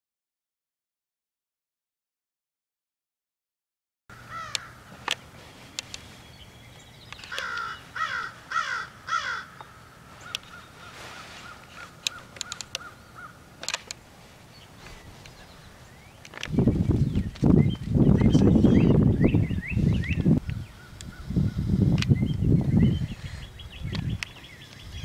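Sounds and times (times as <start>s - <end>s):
bird harsh calls: 4.1s - 13.6s, 14.5s - 25.0s
sharp clicks: 4.5s - 6.1s, 7.1s - 7.7s, 12.0s - 12.9s, 13.6s - 14.0s, 16.2s - 18.5s, 21.9s - 22.4s, 23.9s - 24.8s.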